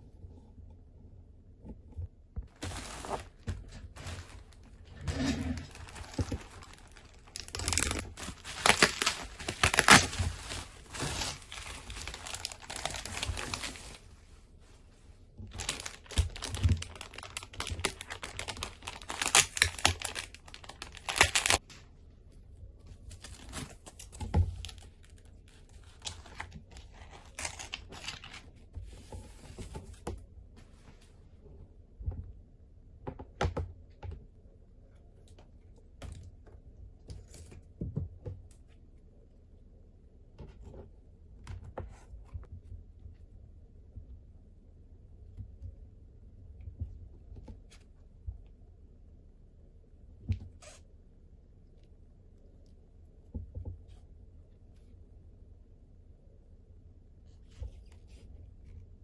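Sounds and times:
plastic packaging crinkling: 2.5s - 14.1s, 15.5s - 21.6s, 23.1s - 28.5s.

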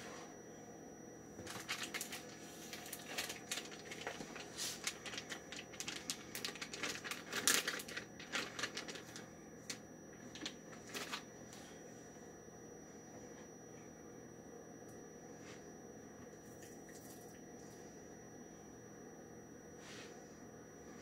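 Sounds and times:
plastic bag crinkling: 1.4s - 11.2s.

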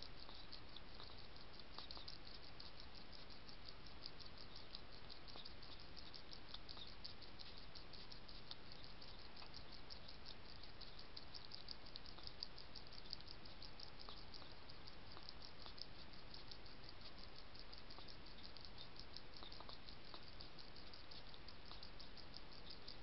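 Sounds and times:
hedgehog chewing and smacking: 0.0s - 23.0s
steady background hiss: 0.0s - 23.0s.

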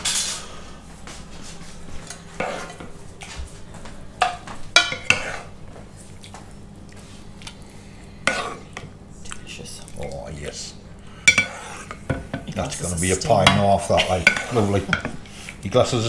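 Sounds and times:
spoon scraping and knocking pans: 2.0s - 2.9s, 4.2s - 5.5s, 11.2s - 15.2s.

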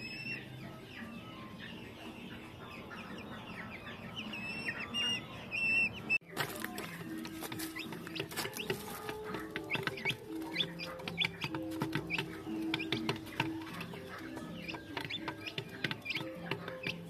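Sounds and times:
background music with held notes: 0.0s - 17.0s
chicks clucking and peeping: 0.0s - 17.0s
beaks tapping on wood: 6.4s - 17.0s.

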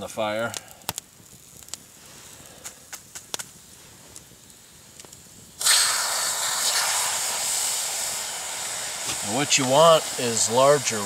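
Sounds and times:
faint crackles and clicks: 0.0s - 6.0s
loud steam hiss: 4.6s - 11.0s.

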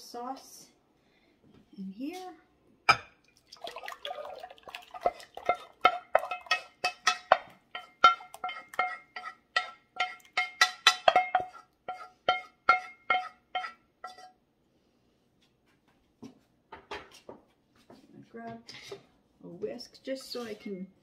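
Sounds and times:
utensil knocking in metal saucepan: 4.9s - 14.3s.

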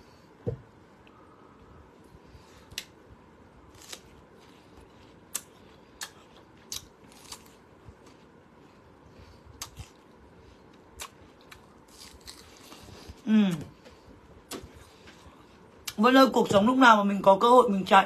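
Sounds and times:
fruit crunching when chewed: 3.7s - 13.8s.

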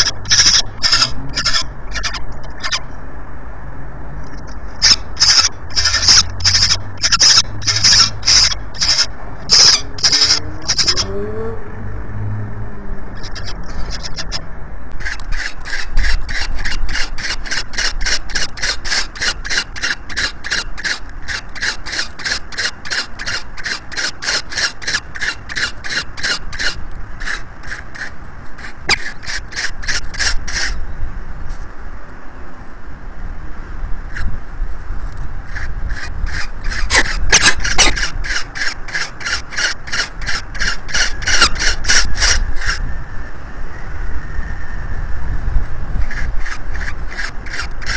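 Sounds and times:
falcon harsh rasping call: 0.0s - 2.8s, 4.8s - 11.1s, 13.2s - 14.4s, 15.0s - 30.8s, 35.5s - 42.8s, 46.1s - 47.9s
falcons high thin calls: 0.0s - 2.8s, 4.8s - 11.1s, 13.2s - 14.4s, 35.5s - 42.8s.

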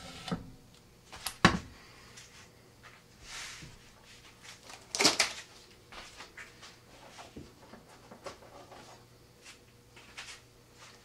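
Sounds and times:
tape rustling and crinkling: 4.2s - 9.0s
tape ripping: 4.6s - 5.4s.

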